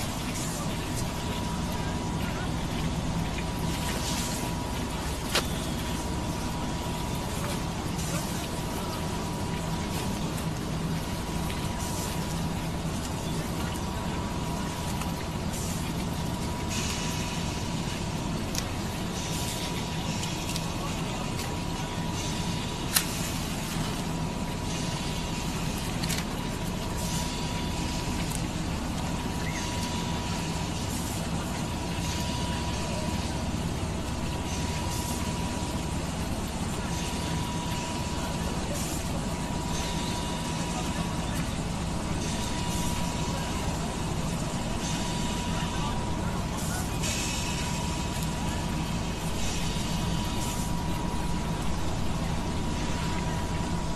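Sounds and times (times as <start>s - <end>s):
faint steady whine: 0.0s - 53.9s
industrial machinery rumble: 0.0s - 53.9s
hiss: 46.6s - 51.5s.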